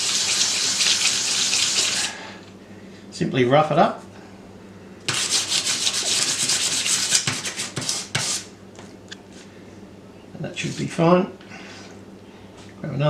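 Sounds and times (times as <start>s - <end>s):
metal rubbed on sandpaper: 5.1s - 8.5s.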